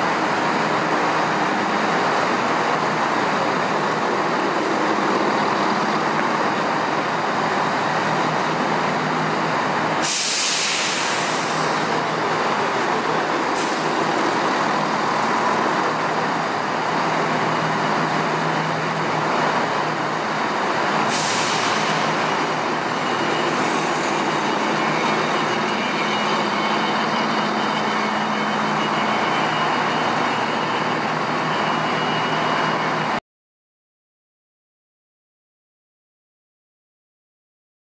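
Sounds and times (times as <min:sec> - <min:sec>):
diesel train running: 0:00.0 - 0:33.2
air brake hisses: 0:10.0 - 0:11.9, 0:13.5 - 0:13.9, 0:21.1 - 0:22.2.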